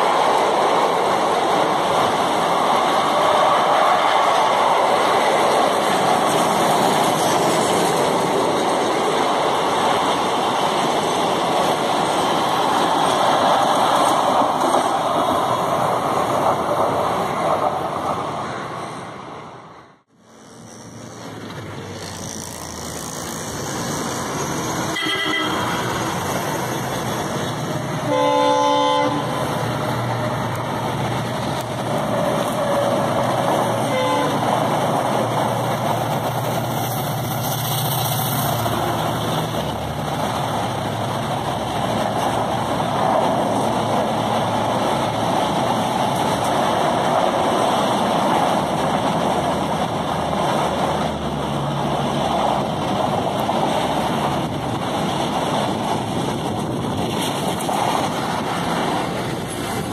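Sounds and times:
train wheels rumbling on rails: 0.0s - 59.9s
electric locomotive horn: 24.9s - 26.0s, 28.0s - 29.4s, 33.8s - 34.5s.

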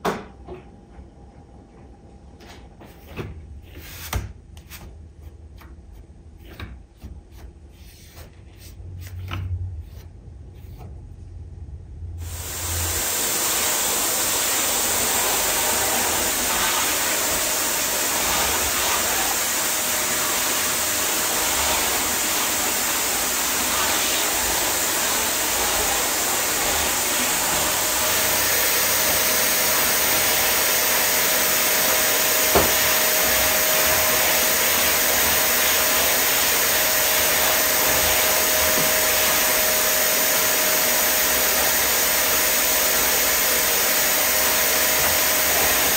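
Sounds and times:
vacuum cleaner running: 12.2s - 45.9s
knock: 32.5s - 32.8s.

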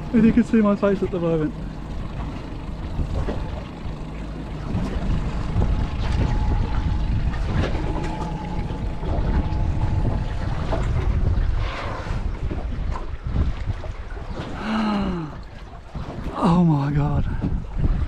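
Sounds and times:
outboard motor idling: 0.0s - 18.0s
wind buffeting microphone: 0.0s - 18.0s.

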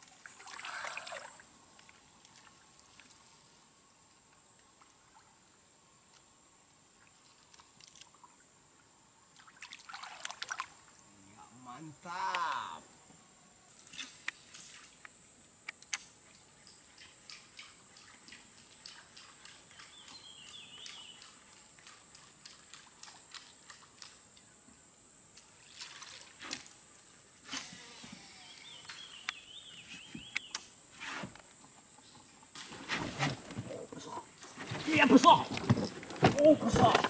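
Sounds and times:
small water sloshes and ticks: 0.0s - 3.5s, 4.2s - 11.1s, 13.8s - 27.1s.

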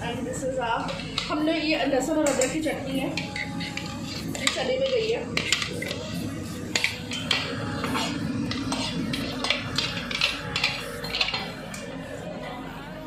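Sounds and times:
ladle clinking against cookware: 2.2s - 11.8s.

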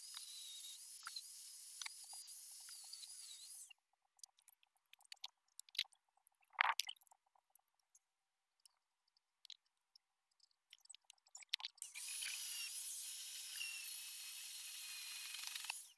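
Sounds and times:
angle grinder cutting metal: 0.0s - 3.7s, 11.8s - 15.9s.

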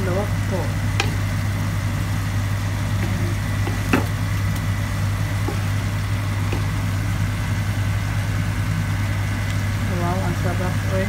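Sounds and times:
steady low hum: 0.0s - 11.0s
spatula knocking frying pan: 1.0s - 1.2s, 5.4s - 6.9s.

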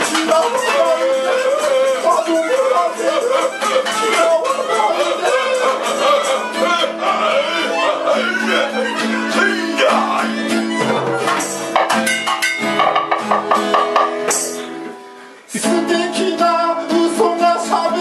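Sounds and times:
person singing: 0.0s - 11.8s, 15.5s - 18.0s
strummed acoustic guitar: 0.0s - 18.0s
drums and tambourine: 10.8s - 14.6s.

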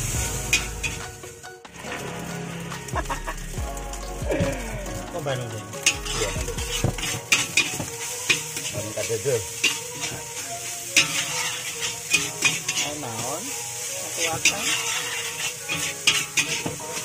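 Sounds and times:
frying sizzle: 0.0s - 17.0s
metal spatula clanking on wok: 14.4s - 16.8s.

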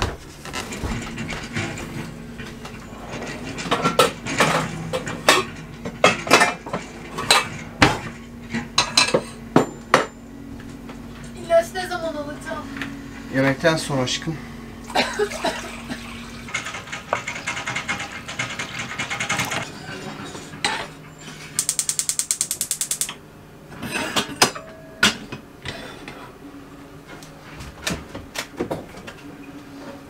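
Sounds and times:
gas hob igniter clicking: 21.6s - 23.2s.

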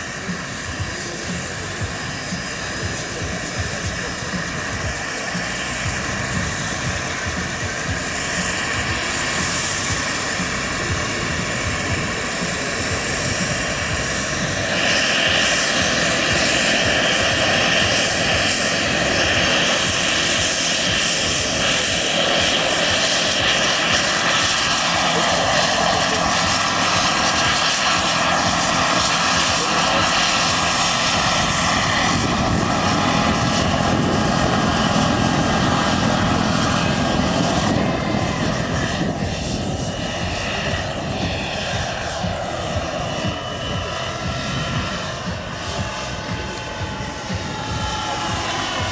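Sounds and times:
model helicopter rotor whine: 0.0s - 48.9s.

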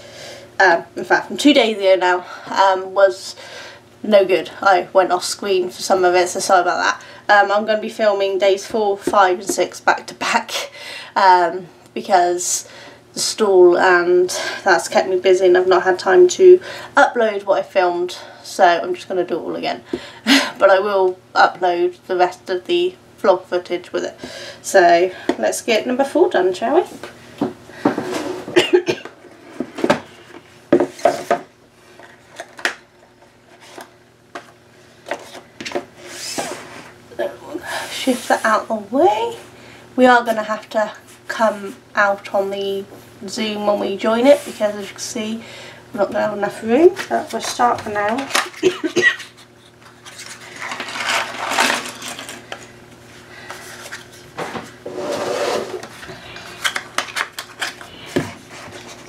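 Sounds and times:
puzzle pieces clattering and sliding: 50.4s - 52.4s.

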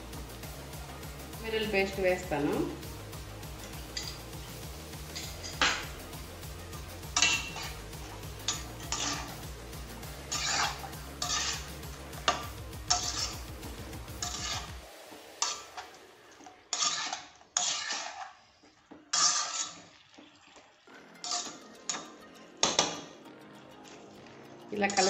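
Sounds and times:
metal spatula scraping a pan: 3.5s - 6.2s, 7.0s - 23.1s, 24.8s - 25.0s.

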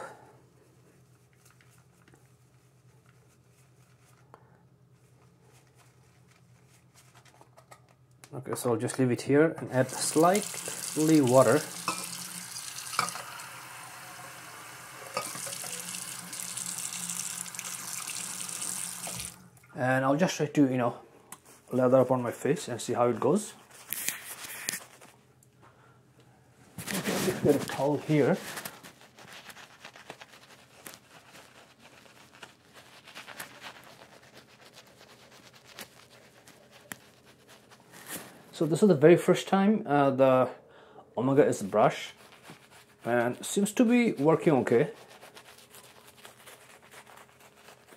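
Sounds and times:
tap water splashing into sink: 10.0s - 13.4s, 15.1s - 19.4s
shaving brush swishing on stubble: 41.7s - 47.9s.

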